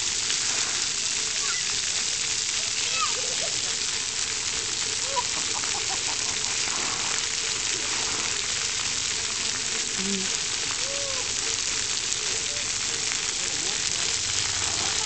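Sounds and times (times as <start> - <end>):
water jets spraying on concrete: 0.0 - 15.0
faint children's voices: 1.2 - 3.9, 9.9 - 13.9, 14.5 - 15.0.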